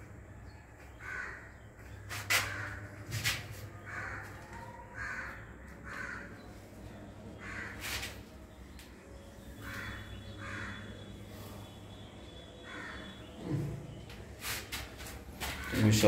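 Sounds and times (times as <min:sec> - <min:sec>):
crows cawing: 0:00.9 - 0:06.6, 0:07.4 - 0:08.2, 0:09.6 - 0:11.1, 0:12.6 - 0:13.3, 0:15.4 - 0:16.0.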